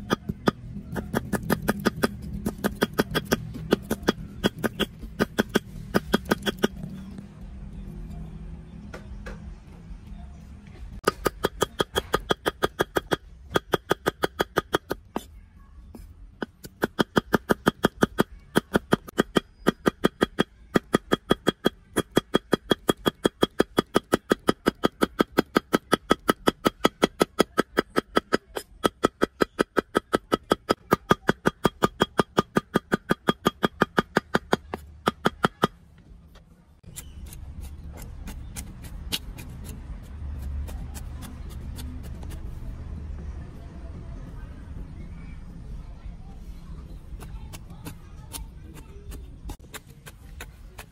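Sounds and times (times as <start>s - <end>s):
knife chopping on wooden block: 0.0s - 6.8s.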